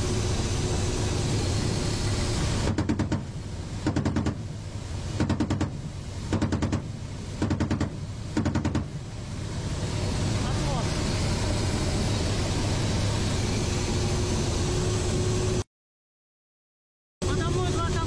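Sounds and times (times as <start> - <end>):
helicopter engine and rotor drone: 0.0 - 15.6.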